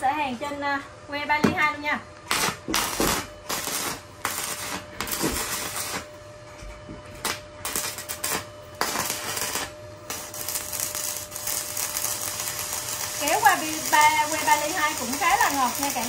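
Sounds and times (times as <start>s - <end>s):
welding arc crackling: 2.2s - 6.2s, 7.2s - 16.0s.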